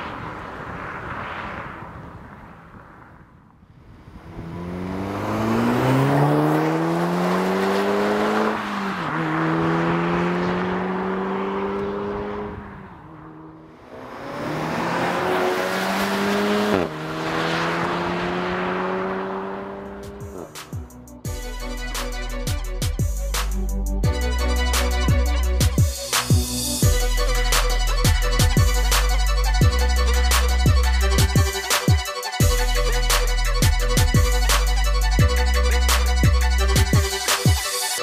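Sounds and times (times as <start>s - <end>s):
car engines accelerating hard: 3.8s - 21.2s.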